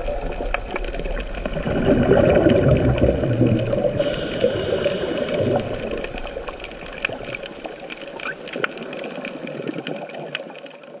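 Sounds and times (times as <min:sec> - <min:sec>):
underwater watery hiss: 0:01.7 - 0:08.6.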